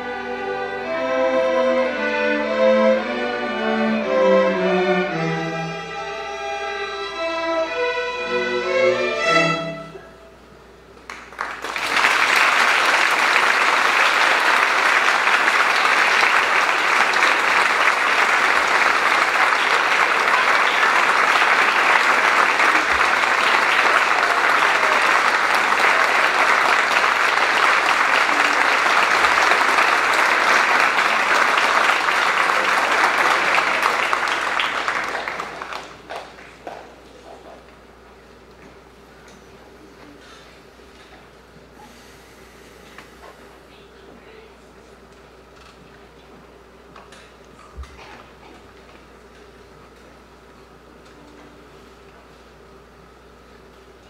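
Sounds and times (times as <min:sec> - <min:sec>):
string orchestra playing: 0:00.0 - 0:10.3
audience applause: 0:11.1 - 0:37.4.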